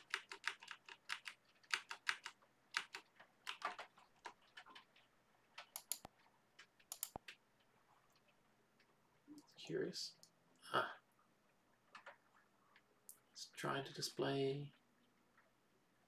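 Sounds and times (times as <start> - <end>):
typing on a computer keyboard: 0.0 - 7.4, 11.9 - 12.2.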